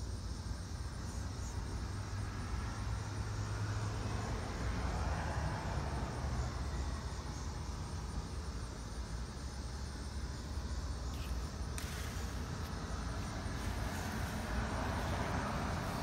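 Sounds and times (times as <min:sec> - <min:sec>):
distant traffic rumble: 0:00.0 - 0:16.0
faint hiss: 0:06.6 - 0:16.0
bright hiss: 0:10.5 - 0:16.0.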